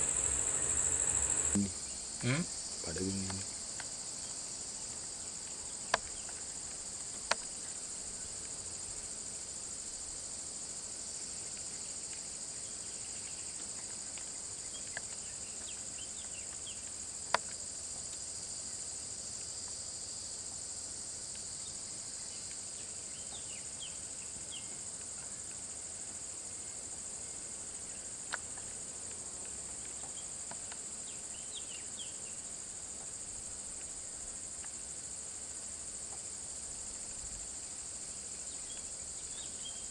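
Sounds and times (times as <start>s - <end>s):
high-pitched insect chorus: 0.0s - 6.7s.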